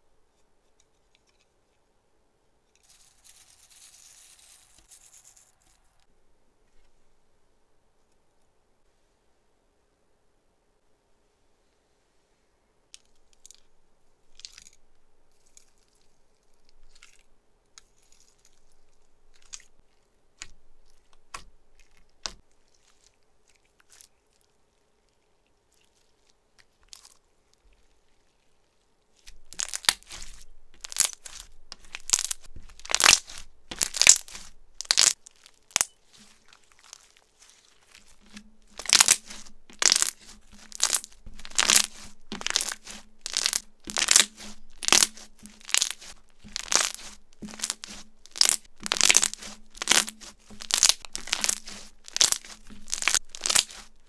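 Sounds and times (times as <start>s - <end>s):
slime crackling and crunching: 14.3s - 54.0s.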